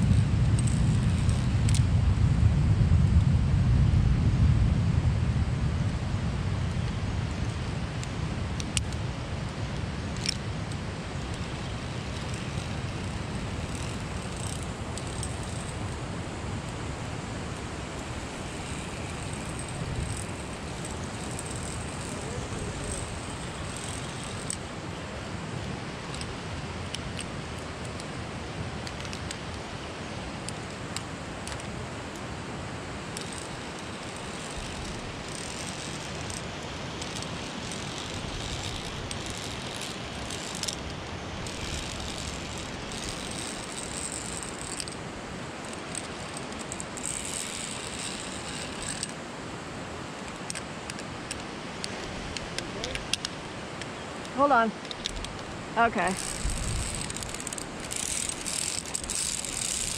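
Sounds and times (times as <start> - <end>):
wind buffeting microphone: 0.0 - 24.7, 55.0 - 59.9.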